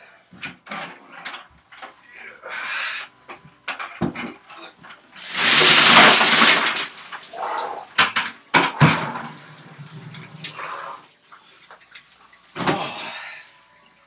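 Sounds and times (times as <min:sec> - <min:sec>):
ice and bucket knocking on tiles: 0:05.2 - 0:07.2
water splashing: 0:05.2 - 0:07.4.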